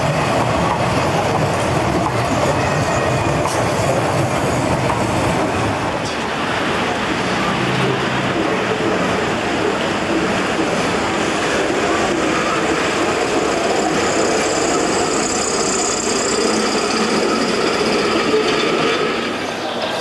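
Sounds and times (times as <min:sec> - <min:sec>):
tram wheels rumbling on rails: 0:00.0 - 0:20.0.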